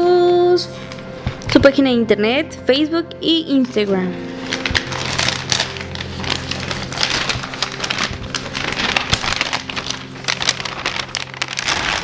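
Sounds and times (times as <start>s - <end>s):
packaging crinkling and rustling: 4.4s - 12.0s.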